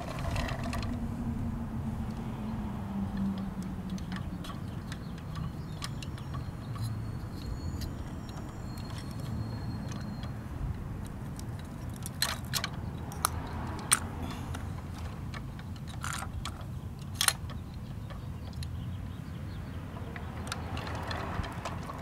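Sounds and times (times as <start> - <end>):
steady low rumble: 0.0 - 4.4
toy clicks and rattles: 3.2 - 10.4, 11.3 - 18.7, 20.0 - 22.0.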